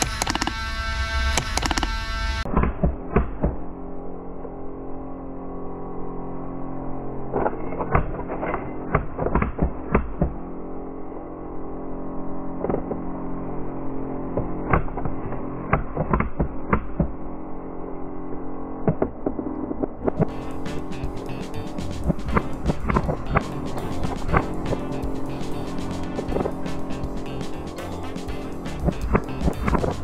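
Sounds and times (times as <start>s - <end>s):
steady hum: 16.4s - 30.0s.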